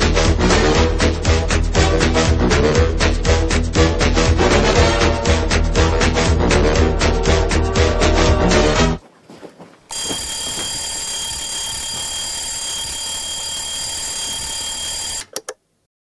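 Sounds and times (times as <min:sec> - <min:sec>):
alarm bell ringing: 0:09.9 - 0:15.3.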